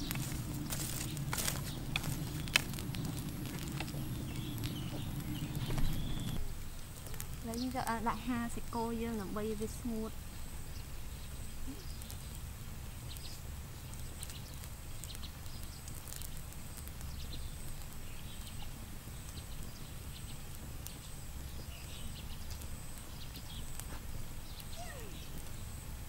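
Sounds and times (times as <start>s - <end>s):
low rumble: 0.0s - 11.6s
campfire crackling and popping: 0.0s - 26.0s.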